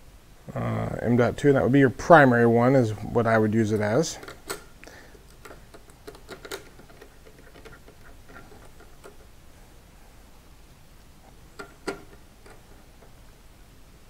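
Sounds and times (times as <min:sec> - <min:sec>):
screwdriver tapping on metal heat sink: 0:11.6 - 0:12.6.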